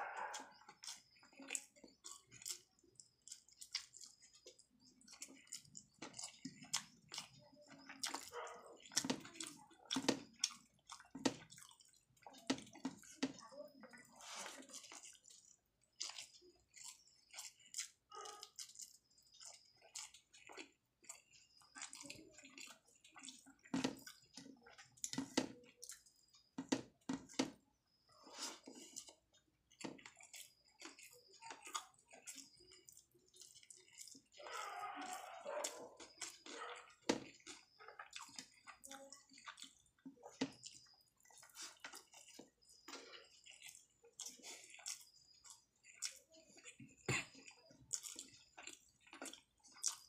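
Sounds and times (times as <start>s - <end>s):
wet chewing and lip-smacking: 0.0s - 50.0s.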